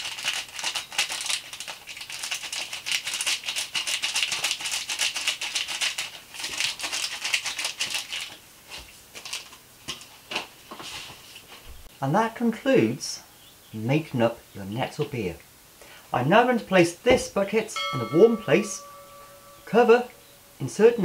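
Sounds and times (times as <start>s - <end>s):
yeast granules rattling in sachet: 0.0s - 10.4s.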